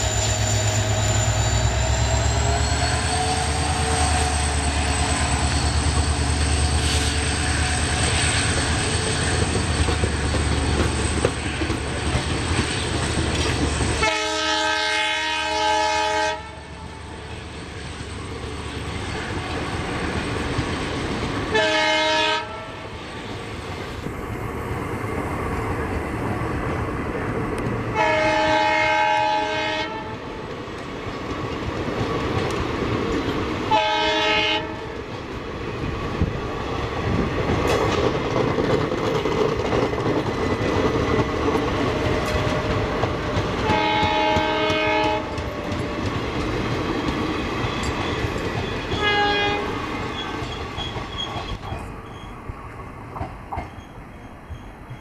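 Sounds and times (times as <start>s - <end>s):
train wheels clacking over rails: 0.0s - 16.2s, 23.2s - 55.0s
locomotive air horn blasts: 14.0s - 16.9s, 21.5s - 22.9s, 28.0s - 30.3s, 33.7s - 35.0s, 43.6s - 45.6s, 49.0s - 49.8s.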